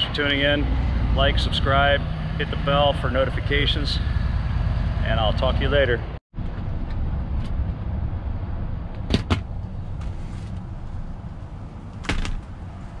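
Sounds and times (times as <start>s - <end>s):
low rumble inside vehicle cab: 6.4s - 13.0s
sharp knocks: 12.0s - 12.4s.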